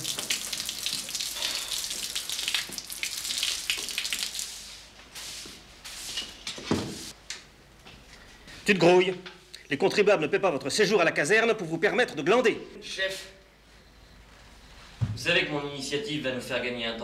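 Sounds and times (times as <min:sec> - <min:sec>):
water trickling from bucket: 0:00.0 - 0:04.7.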